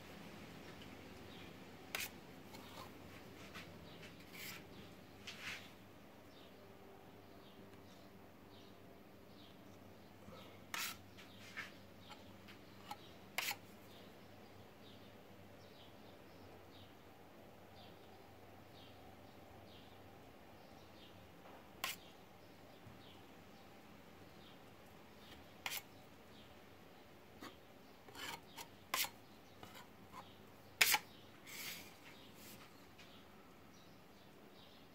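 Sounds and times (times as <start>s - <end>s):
blade scraping plaster: 1.9s - 2.9s, 10.7s - 11.0s, 12.9s - 13.6s, 25.6s - 25.9s, 27.4s - 31.8s.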